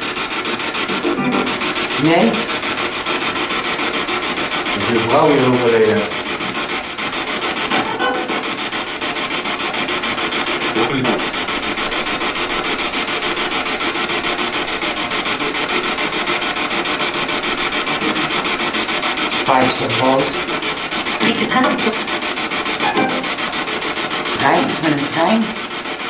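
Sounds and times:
choppy radio static: 0.6 - 3.3, 10.6 - 13.9, 15.2 - 23.6.

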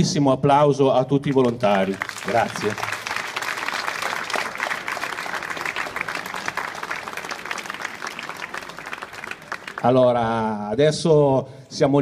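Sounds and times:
crowd applauding: 1.2 - 10.2.

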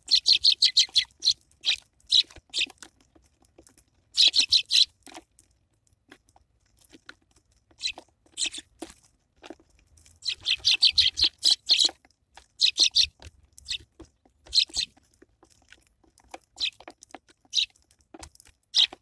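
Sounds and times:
sparrows chirping: 0.0 - 2.9, 4.1 - 5.0, 7.7 - 8.8, 10.1 - 15.0, 16.4 - 17.8, 18.6 - 19.0
birds pecking on wooden tray: 0.0 - 19.0.

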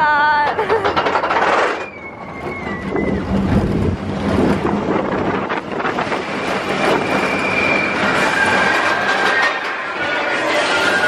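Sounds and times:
roller coaster rushing along track: 0.0 - 11.0
low rumble: 1.8 - 9.2
wind buffeting microphone: 1.9 - 9.0.

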